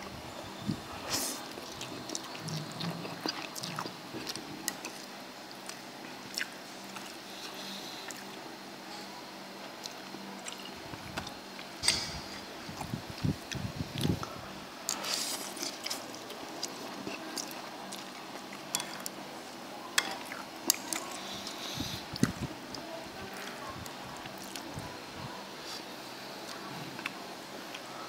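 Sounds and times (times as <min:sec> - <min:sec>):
slurping and chewing: 0:01.1 - 0:08.3, 0:14.9 - 0:19.2.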